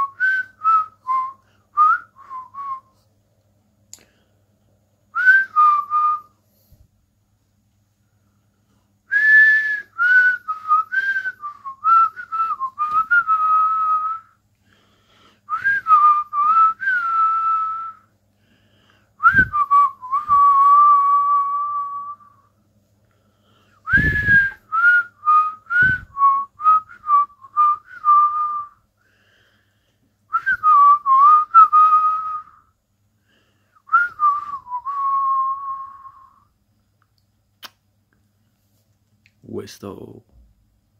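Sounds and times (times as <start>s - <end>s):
man whistling: 0.0s - 3.0s, 5.1s - 6.4s, 9.1s - 14.4s, 15.5s - 18.1s, 19.2s - 22.5s, 23.8s - 28.8s, 30.3s - 32.7s, 33.8s - 36.5s.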